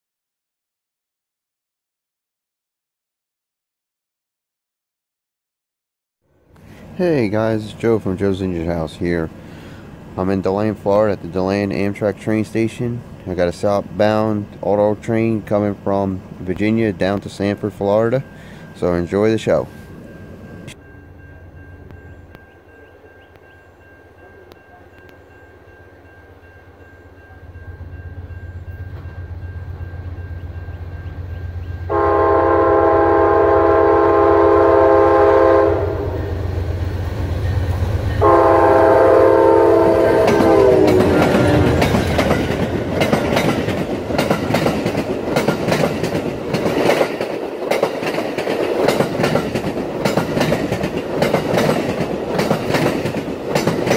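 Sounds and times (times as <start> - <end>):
diesel locomotive rumble: 6.4 - 53.9
train horn blasts: 31.8 - 36.5, 38.2 - 42.0
train wheels clattering over rails: 40.2 - 53.9.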